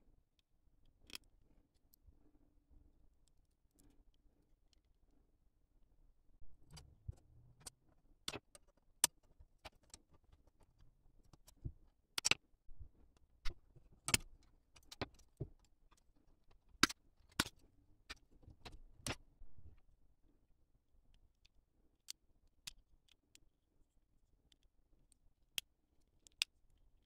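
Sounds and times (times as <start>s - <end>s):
plastic parts clicking and snapping: 12.2s - 12.4s, 13.5s - 16.0s.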